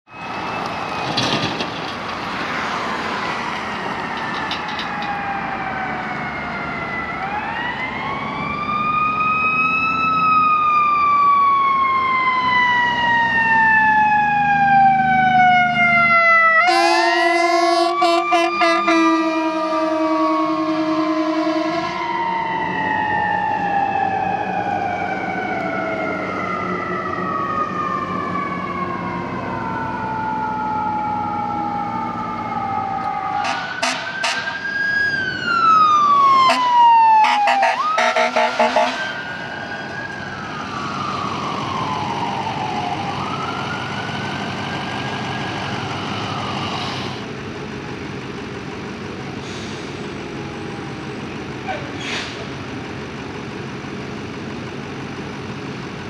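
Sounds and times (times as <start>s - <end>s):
siren wailing: 0.1s - 1.5s, 2.4s - 47.3s
truck engine: 0.1s - 56.0s
short horn blasts: 33.4s - 34.6s, 36.5s - 39.1s.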